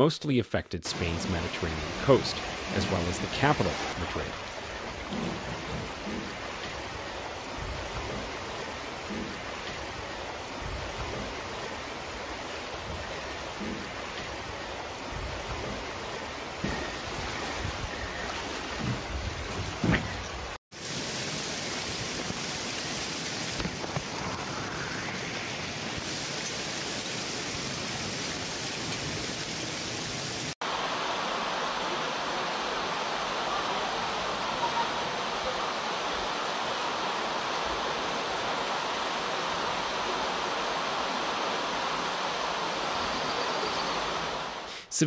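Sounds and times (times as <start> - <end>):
floodwater rushing along street: 1.0 - 44.7
heavy rain on paved street: 20.7 - 44.7.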